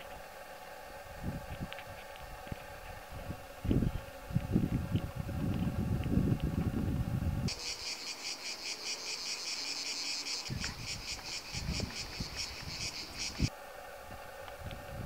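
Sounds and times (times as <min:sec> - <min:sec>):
wind rumble on microphone: 0:00.0 - 0:07.8, 0:10.4 - 0:15.0
low wind buffets: 0:00.0 - 0:15.0
cicada buzzing: 0:07.5 - 0:13.5.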